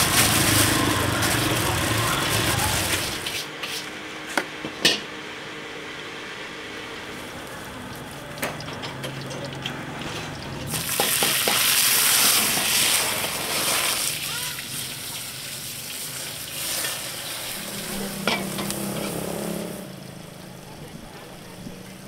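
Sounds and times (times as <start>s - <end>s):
loud cooking clatter: 0.0s - 5.2s, 7.0s - 22.0s
utensils clinking: 7.8s - 11.6s.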